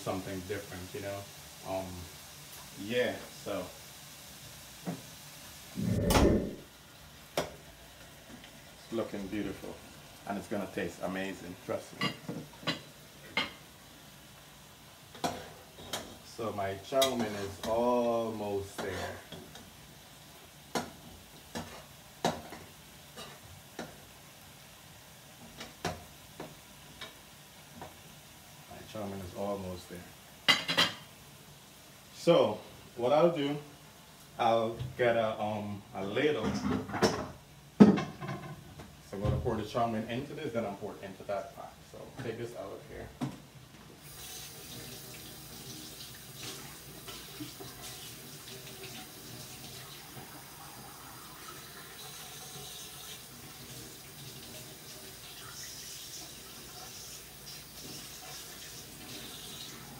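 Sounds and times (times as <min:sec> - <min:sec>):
faint frying sizzle: 0:00.0 - 0:59.9
faucet running into metal sink: 0:44.0 - 0:59.9.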